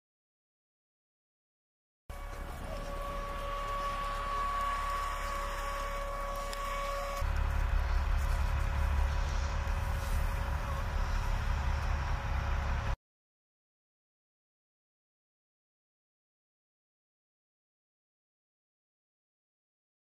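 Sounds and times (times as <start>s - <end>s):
armoured vehicle engine rumble: 2.1s - 13.0s
steady whine: 2.1s - 13.0s.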